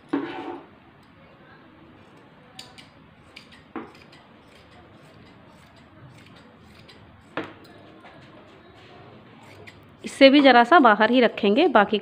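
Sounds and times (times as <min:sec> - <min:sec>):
scissors cutting fabric: 0:02.0 - 0:08.2, 0:09.4 - 0:10.4
scissor blades clicking: 0:02.1 - 0:07.8, 0:09.4 - 0:10.1.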